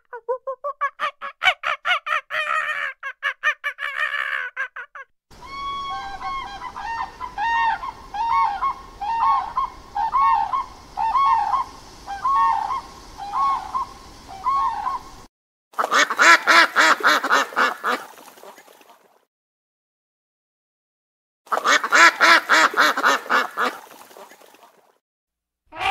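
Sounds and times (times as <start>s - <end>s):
cranes honking: 5.3s - 15.1s
bird's rapid pulsed calls: 5.4s - 18.0s.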